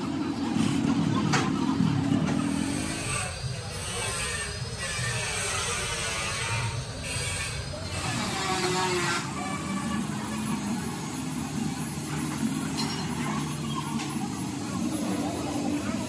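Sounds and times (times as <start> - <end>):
engine running: 0.0 - 3.7, 7.6 - 16.0.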